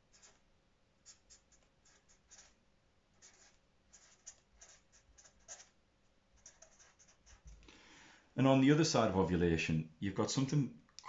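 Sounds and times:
marker pen scratching on paper: 0.0s - 0.4s, 1.0s - 5.8s, 6.4s - 7.6s.

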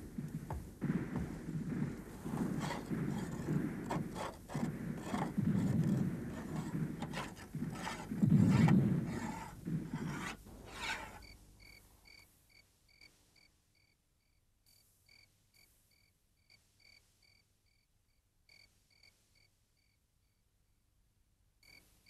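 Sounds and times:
crickets chirping: 0.0s - 20.4s, 21.6s - 21.9s
blade scraping on stone: 2.2s - 11.3s.

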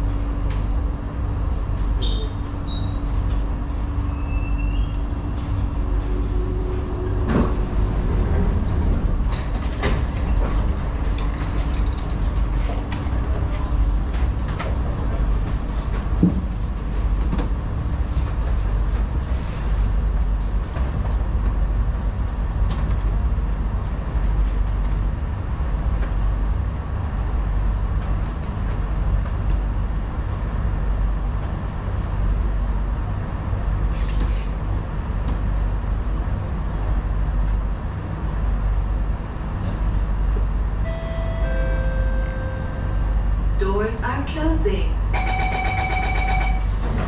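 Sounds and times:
train rumbling: 0.0s - 47.0s.

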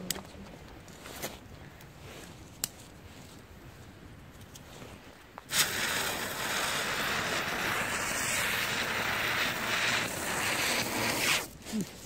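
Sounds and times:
firework hissing sparks: 5.5s - 11.8s.

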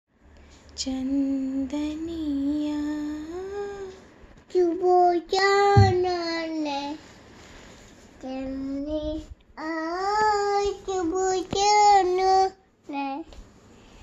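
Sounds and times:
brief thump: 5.7s - 6.2s.

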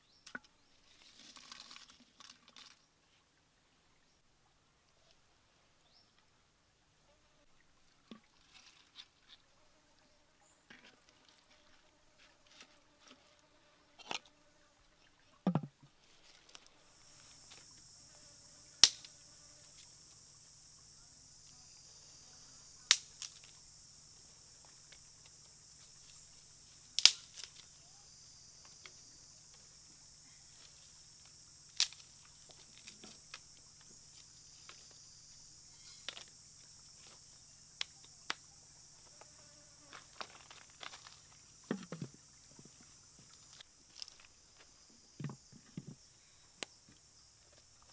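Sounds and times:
soft knocks and thump: 15.4s - 15.9s, 45.2s - 46.0s
high-pitched insect drone: 16.9s - 45.5s
stick fire crackling: 26.9s - 27.7s.

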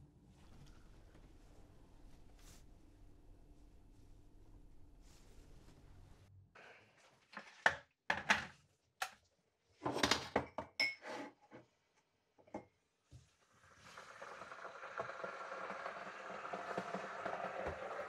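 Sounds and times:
kettle heating hiss: 13.9s - 18.0s.

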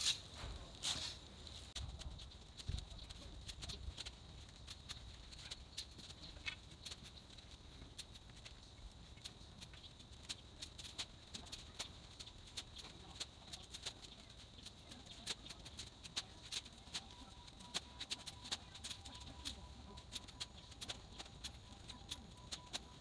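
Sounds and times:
shovel digging soil: 0.0s - 1.2s.

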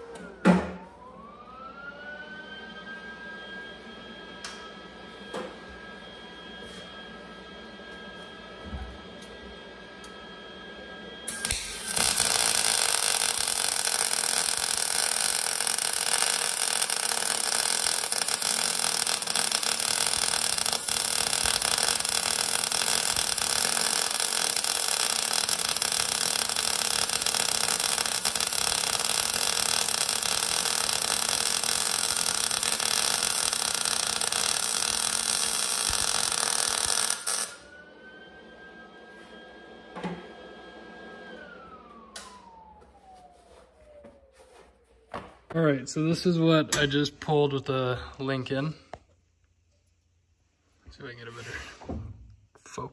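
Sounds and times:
welding arc crackling: 11.3s - 37.6s.

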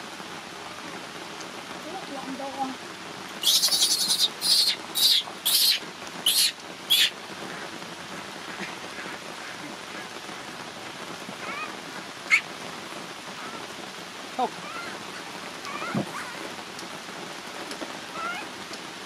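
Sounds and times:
steady rain: 0.0s - 19.0s
baby monkey screaming: 3.4s - 7.1s, 11.4s - 12.4s, 14.6s - 15.0s, 15.7s - 16.4s, 18.1s - 18.5s.

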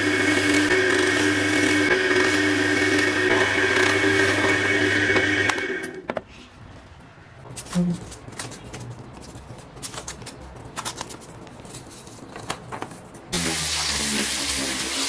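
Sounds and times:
orbital sander sanding wood: 0.0s - 5.4s, 13.4s - 15.0s.

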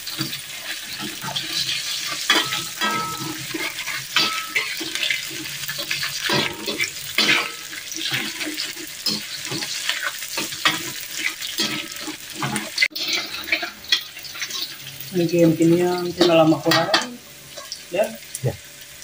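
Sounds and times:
spatula scraping a wok: 0.0s - 14.8s
food sizzling in oil: 0.0s - 19.0s.

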